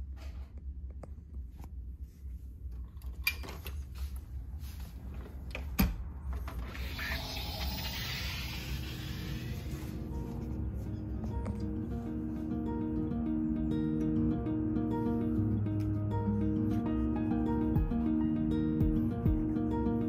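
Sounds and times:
sliding door rushing hiss: 6.6s - 10.0s.

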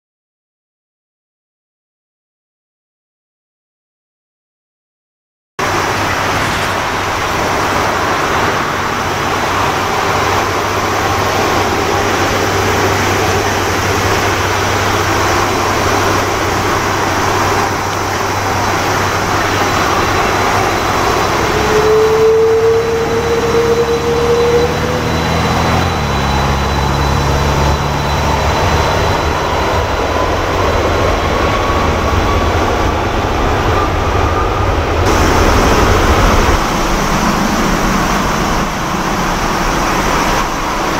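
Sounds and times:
jet engine whine: 5.6s - 40.9s
rising whine: 5.6s - 40.9s
low rumble: 22.8s - 40.9s.

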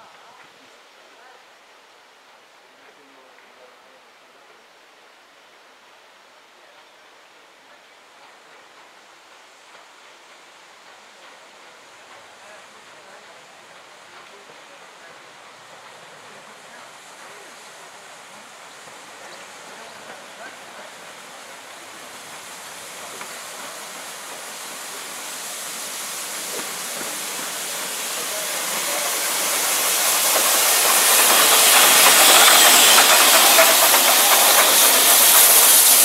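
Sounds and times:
steam locomotive hissing: 8.3s - 36.0s.

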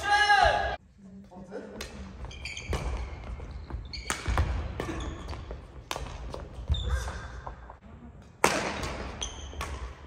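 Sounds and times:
racket hitting shuttlecock: 1.8s - 3.4s, 4.0s - 7.2s, 8.4s - 10.0s
shoes squeaking on wooden floor: 2.2s - 5.7s.

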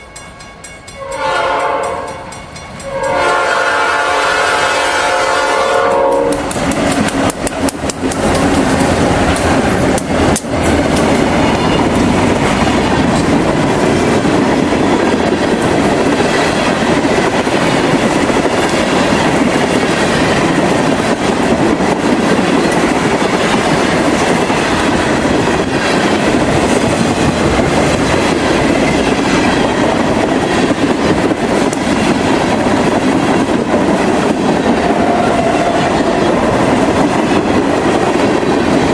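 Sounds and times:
train wheels on rails: 0.0s - 38.9s
train horn: 0.9s - 6.6s, 34.8s - 36.4s
locomotives passing: 6.2s - 38.9s.

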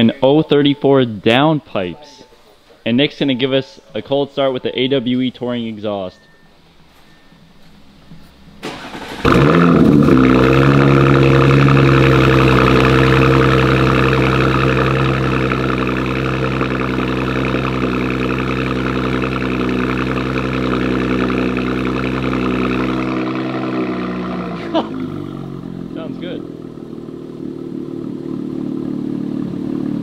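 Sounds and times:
car engine revving and idling: 8.3s - 30.0s
engine cranking: 8.6s - 15.9s.

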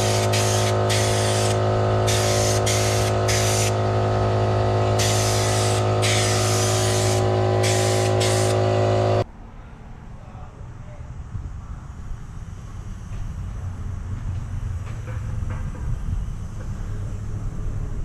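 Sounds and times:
spray gun hissing: 0.0s - 9.2s
machine hum: 0.0s - 9.3s.

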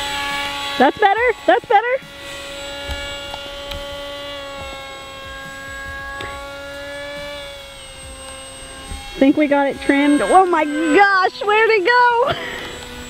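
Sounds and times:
electric motor and propeller whining: 0.0s - 13.0s.

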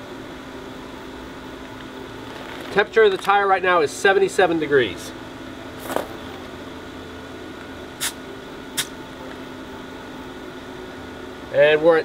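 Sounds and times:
air hissing from tire valve: 8.0s - 8.2s.

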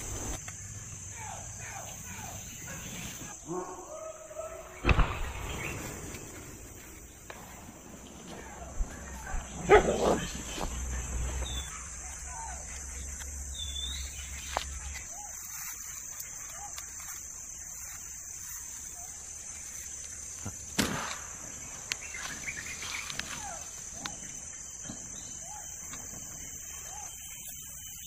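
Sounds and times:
insects droning: 0.0s - 28.0s
dry leaves rustling: 10.3s - 24.1s.

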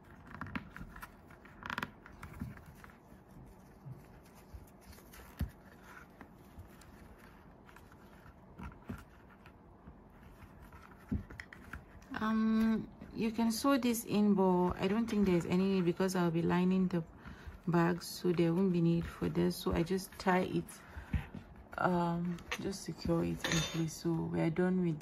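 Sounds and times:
yarn rustling and scratching: 0.0s - 12.6s.

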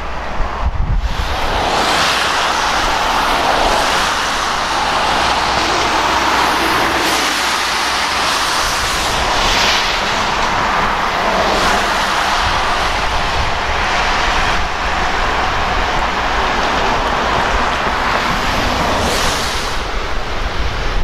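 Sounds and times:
river rushing: 0.0s - 21.0s.

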